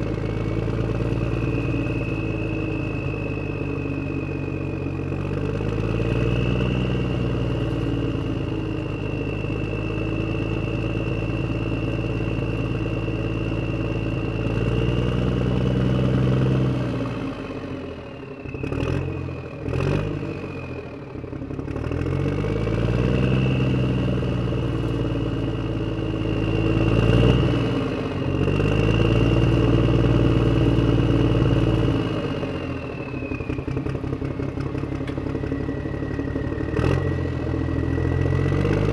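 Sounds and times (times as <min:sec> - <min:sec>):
steady high whine: 0:00.0 - 0:38.9
tractor engine revving: 0:00.0 - 0:38.9.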